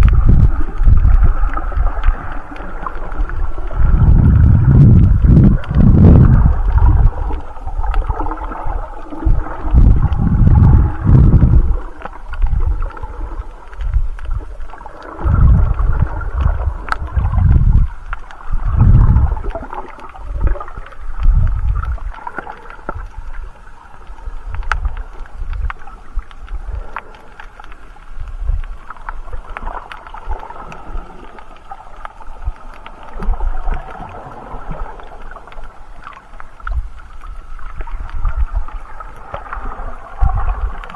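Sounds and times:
faint sharp clicks: 0:00.0 - 0:03.8, 0:11.7 - 0:17.2, 0:19.4 - 0:40.9
underwater water surging: 0:00.0 - 0:40.9.

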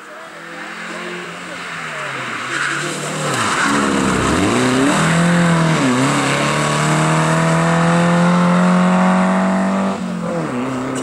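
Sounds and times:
rally car engine revving: 0:00.0 - 0:11.0.

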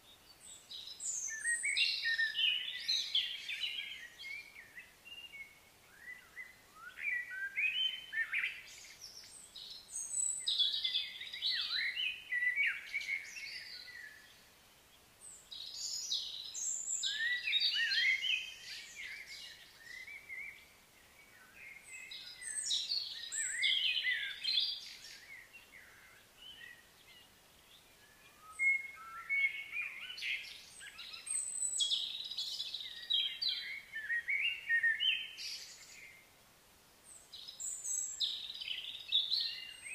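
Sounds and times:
songbirds chattering: 0:15.2 - 0:36.3.

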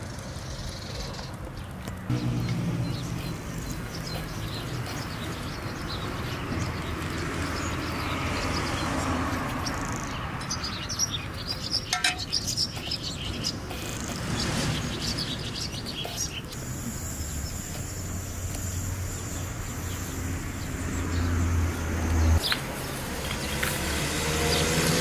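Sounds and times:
small birds chirping: 0:00.0 - 0:25.0
steady hiss: 0:15.9 - 0:21.7.

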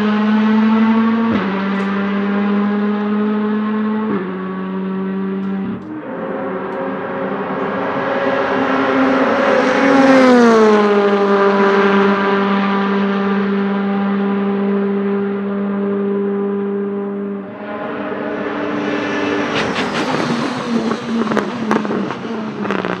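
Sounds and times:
race car engine at full throttle: 0:00.0 - 0:23.0.

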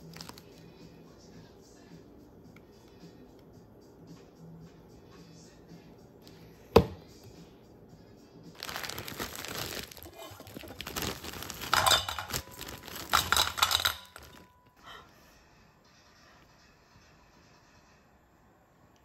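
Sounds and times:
plastic bag crinkling: 0:00.0 - 0:00.6, 0:08.6 - 0:14.6.

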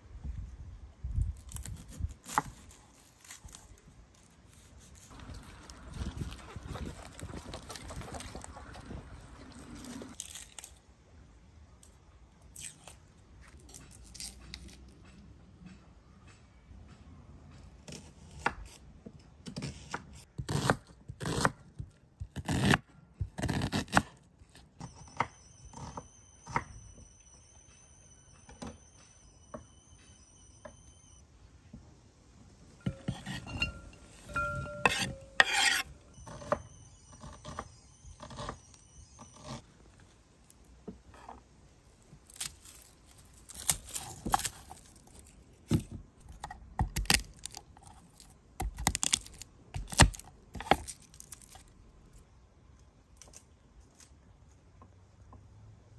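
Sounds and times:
onion scraped into ceramic bowl: 0:32.9 - 0:35.9
garlic crushed with knife: 0:42.3 - 0:51.7.

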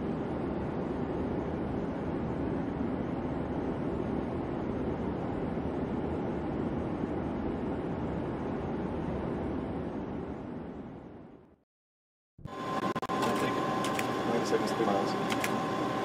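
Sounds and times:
distant jet engines roaring: 0:12.5 - 0:16.0.

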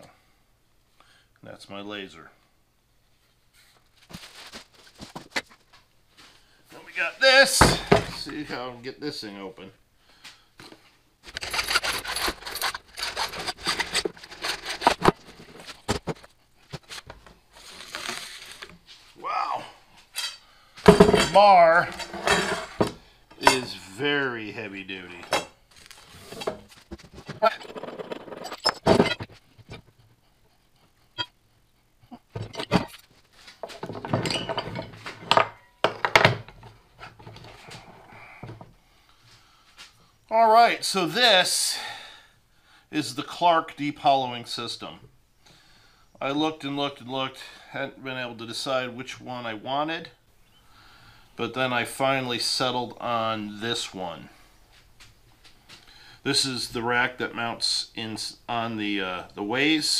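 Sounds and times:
metal scraping: 0:11.2 - 0:16.2, 0:20.2 - 0:23.8, 0:26.0 - 0:29.9
metal parts clanking: 0:11.3 - 0:16.2, 0:27.3 - 0:29.4, 0:33.7 - 0:36.6
scraping plastic tube cap: 0:11.3 - 0:17.0.

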